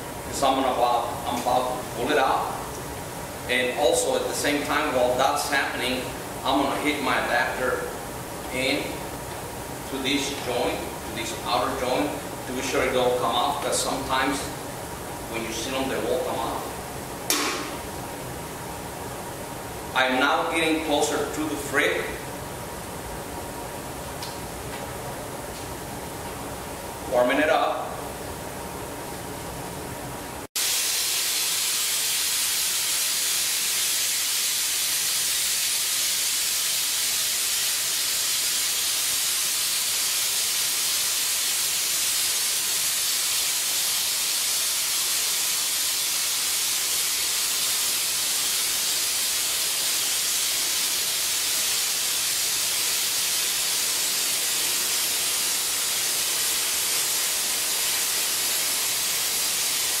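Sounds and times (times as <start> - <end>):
gas torch flame hissing: 0.0 - 18.0, 30.5 - 60.0.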